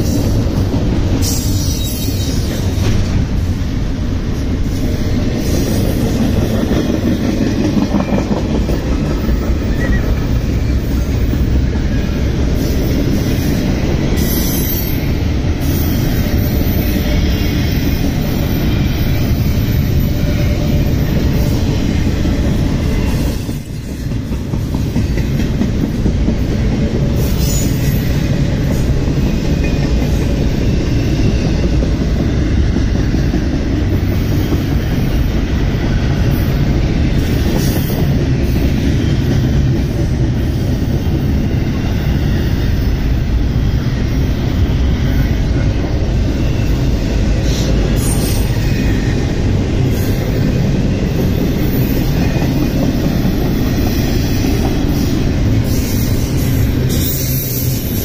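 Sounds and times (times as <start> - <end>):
clickety-clack over rail joints: 0.0 - 58.0
freight train wheels rumbling: 0.0 - 58.0.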